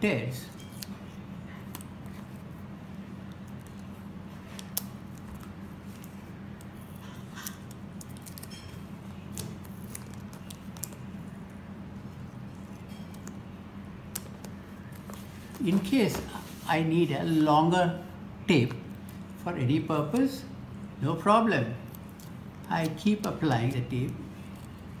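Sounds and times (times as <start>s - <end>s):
steady low hum: 0.0s - 25.0s
tape peeling crackle: 3.2s - 11.1s, 21.8s - 25.0s.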